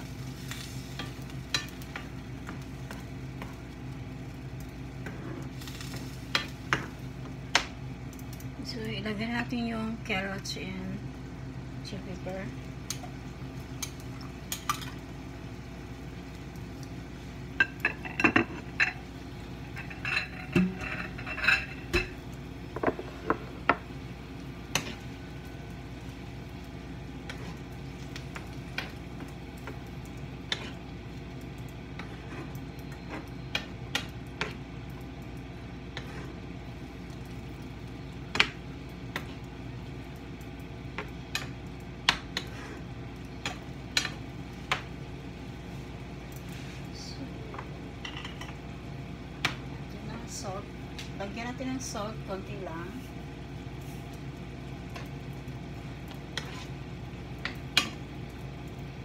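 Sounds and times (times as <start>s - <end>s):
spoon stirring in a pan: 17.6s - 23.9s, 24.6s - 34.6s, 40.9s - 45.0s, 53.0s - 58.4s.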